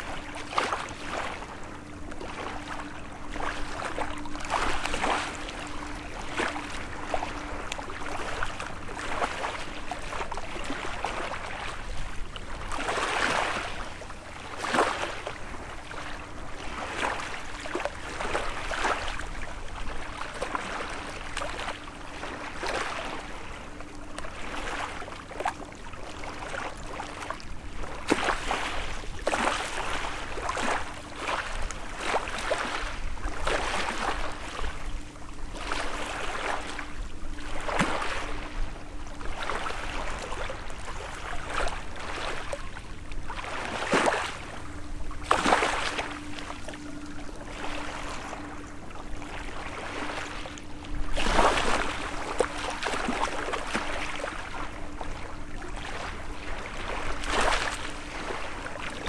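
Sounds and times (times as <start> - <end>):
faint steady hum: 0.0 - 59.0
small waves lapping: 0.0 - 59.0.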